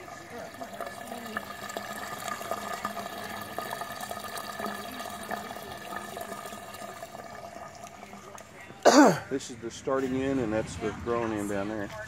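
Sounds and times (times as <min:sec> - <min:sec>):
water dripping: 0:00.0 - 0:08.7
water running down a drain pipe: 0:00.0 - 0:08.9.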